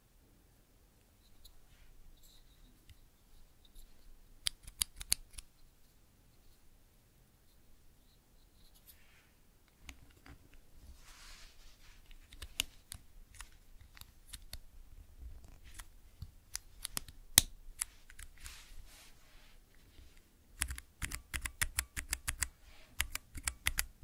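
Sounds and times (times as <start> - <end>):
mechanical keyboard typing: 4.5 - 5.4, 20.6 - 24.0.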